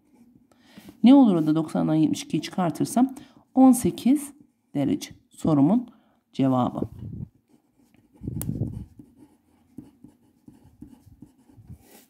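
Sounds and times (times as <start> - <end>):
pen scratching on paper: 7.5 - 12.0.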